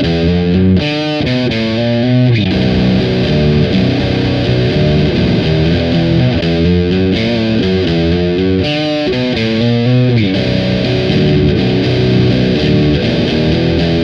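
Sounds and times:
distorted electric guitar riff: 0:00.0 - 0:14.0.

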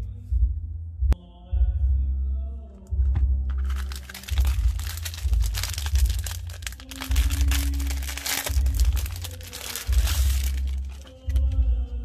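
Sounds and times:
music with heavy bass beat: 0:02.9 - 0:11.9
plastic packaging crinkling: 0:03.5 - 0:11.5.

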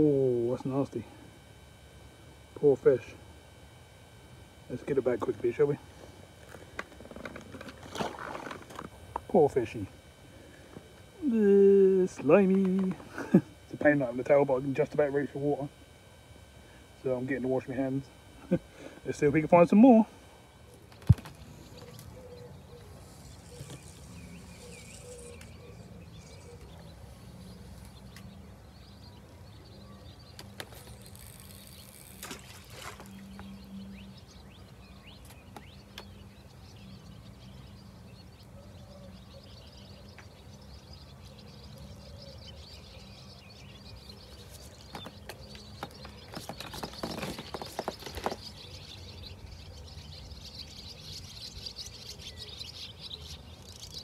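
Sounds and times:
small birds chirping: 0:00.0 - 0:54.0
rustling and clicking: 0:44.4 - 0:48.7.

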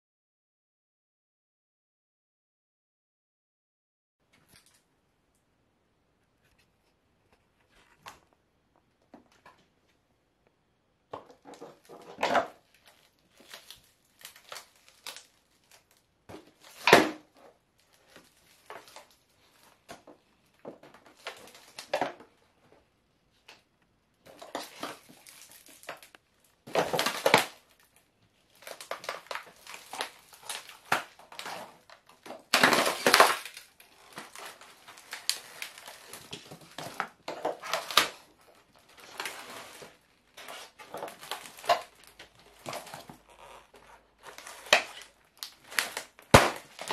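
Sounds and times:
foam crunching and cracking: 0:11.2 - 0:22.3, 0:24.2 - 0:46.9.

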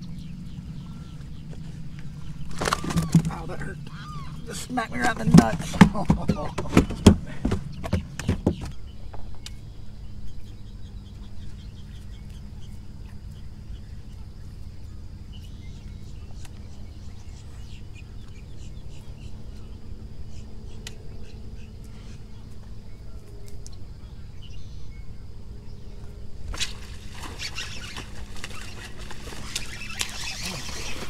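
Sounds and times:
birds chirping and calling: 0:00.0 - 0:31.0
steady low hum: 0:00.0 - 0:31.0.

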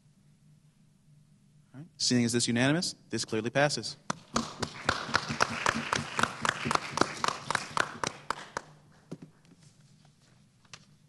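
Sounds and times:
small group applauding: 0:04.1 - 0:09.1.

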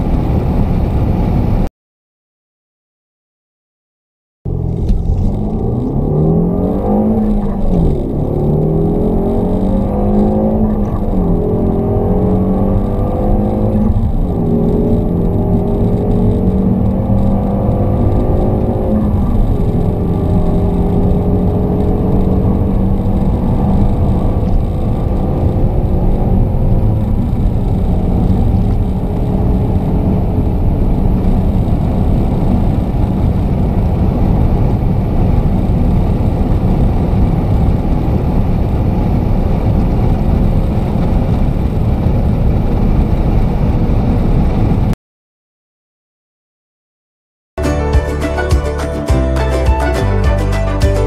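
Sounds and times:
road and wind noise: 0:00.0 - 0:01.7, 0:04.5 - 0:45.0
car engine pulling hard: 0:04.5 - 0:44.9.

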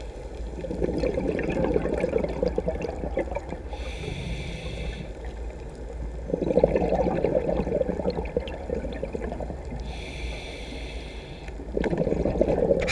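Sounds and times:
bubbling exhale underwater: 0:00.6 - 0:05.1, 0:06.2 - 0:10.0, 0:11.7 - 0:12.9
regulator hissing inhale: 0:03.7 - 0:05.4, 0:09.8 - 0:11.7.

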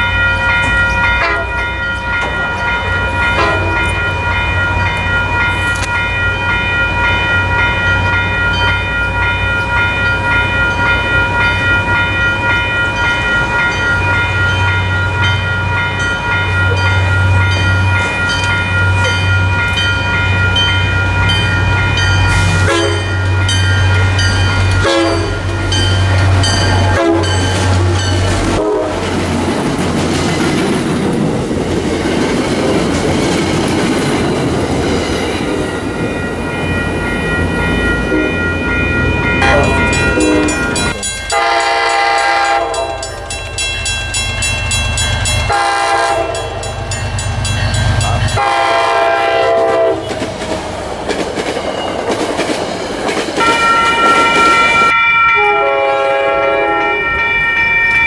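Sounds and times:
train wheels clacking on rails: 0:00.0 - 0:55.5
diesel locomotive engine drone: 0:00.0 - 0:58.0
pulsing ringing warning signal: 0:35.7 - 0:49.9.

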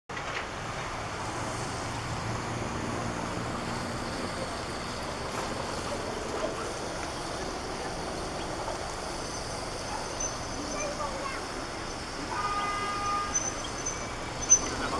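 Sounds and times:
distant helicopter rumble: 0:00.2 - 0:14.9.

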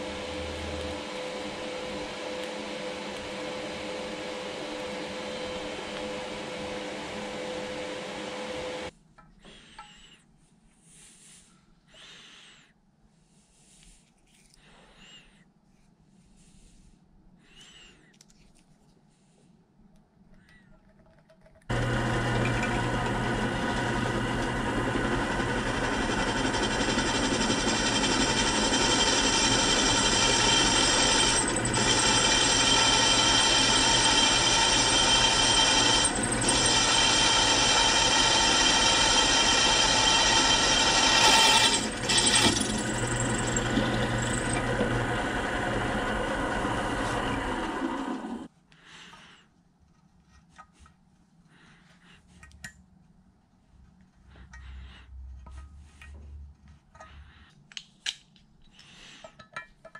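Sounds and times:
faint handling sounds: 0:13.0 - 0:21.7, 0:48.5 - 0:59.9
drill press drilling metal: 0:21.7 - 0:48.5.

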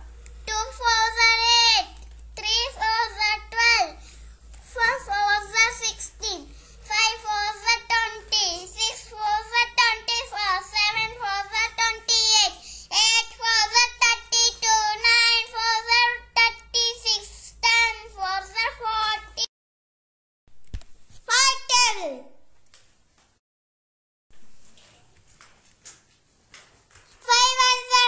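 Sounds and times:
child chanting sing-song: 0:00.5 - 0:04.0, 0:04.7 - 0:19.5, 0:27.3 - 0:28.0.

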